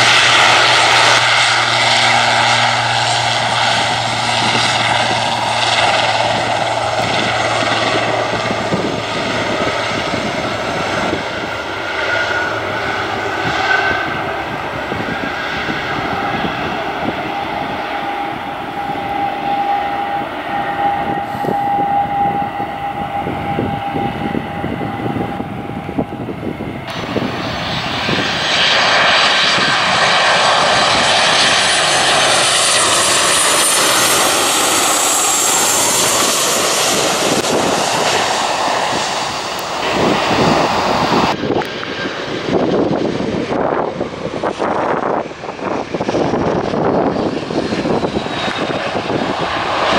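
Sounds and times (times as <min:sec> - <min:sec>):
jet engines passing close: 0:00.0 - 0:49.9
turboprop engines droning: 0:00.0 - 0:49.9.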